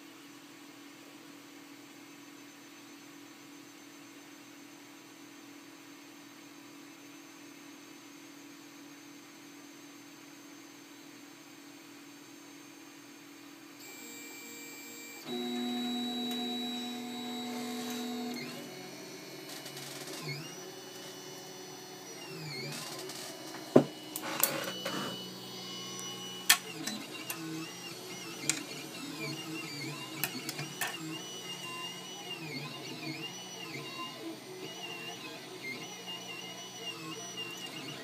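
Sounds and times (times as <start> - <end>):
stepper motors whining: 13.8 - 38.0.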